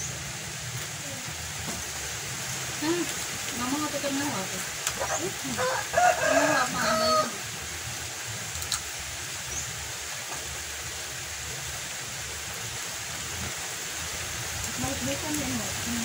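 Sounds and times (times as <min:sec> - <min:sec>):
outdoor hiss: 0:00.0 - 0:16.0
rooster crowing: 0:05.0 - 0:07.5.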